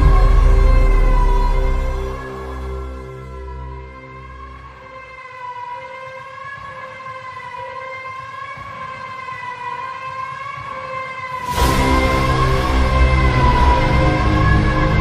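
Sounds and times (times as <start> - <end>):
music with low bass notes: 0.0 - 5.0.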